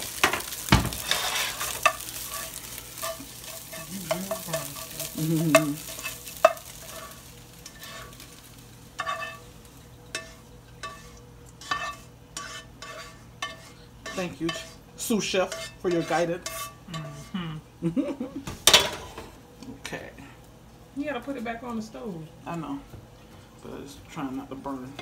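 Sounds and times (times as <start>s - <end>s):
spatula scraping pan: 0.0s - 8.3s, 8.9s - 17.4s
eggs sizzling in a pan: 0.0s - 25.0s.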